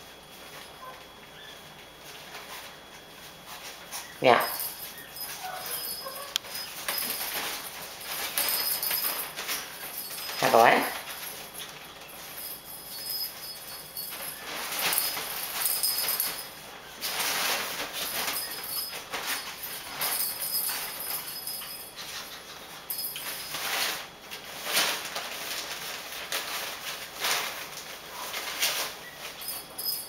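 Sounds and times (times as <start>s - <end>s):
paws scrabbling on tiles: 0.3s - 30.0s
fabric tunnel rustling: 4.4s - 21.4s.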